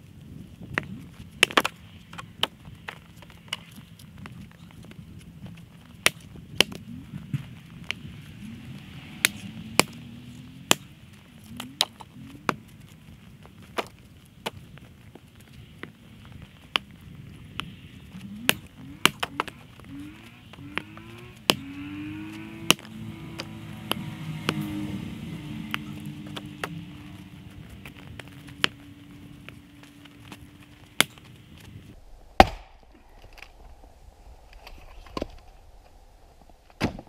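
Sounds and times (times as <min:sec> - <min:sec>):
axe splitting firewood: 0:01.4 - 0:03.7, 0:05.8 - 0:08.0, 0:09.1 - 0:12.6, 0:18.2 - 0:24.8, 0:30.3 - 0:31.4, 0:32.4 - 0:33.6, 0:36.8 - 0:37.0.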